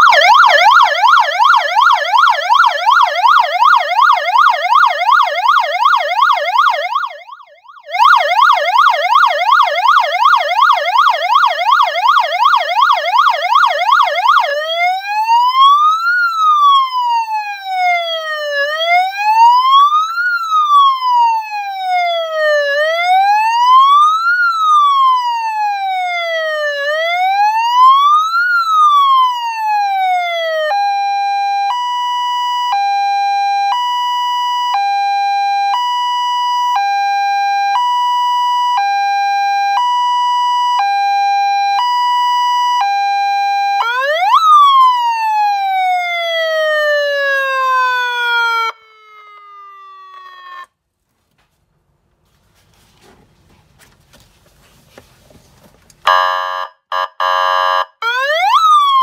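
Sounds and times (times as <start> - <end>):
electronic police siren: 0.0 - 50.8, 56.0 - 59.0.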